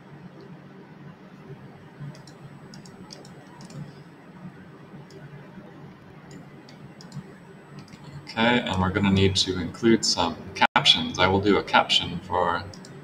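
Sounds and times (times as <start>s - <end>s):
faint room hiss: 0.0s - 13.0s
computer mouse clicks: 2.0s - 4.0s, 5.0s - 5.3s, 6.2s - 8.1s, 12.7s - 13.0s.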